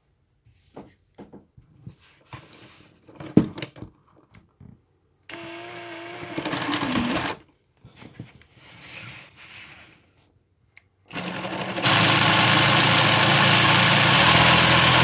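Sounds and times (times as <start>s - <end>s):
cordless drill motor whining: 5.3s - 7.4s, 11.1s - 15.0s.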